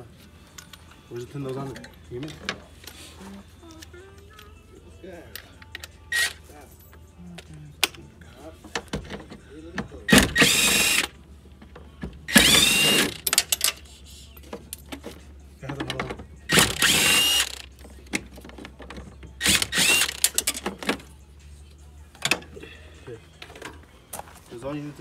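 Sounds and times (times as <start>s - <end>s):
cordless drill whining: 10.3s - 11.1s, 12.3s - 13.2s, 16.5s - 17.6s, 19.4s - 20.2s
metallic clicks and clinks: 13.2s - 13.9s.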